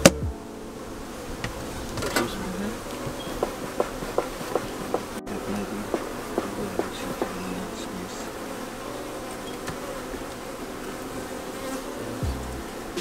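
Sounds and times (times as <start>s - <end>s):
low bumps: 0.0s - 7.8s
honey bees buzzing: 0.0s - 13.0s.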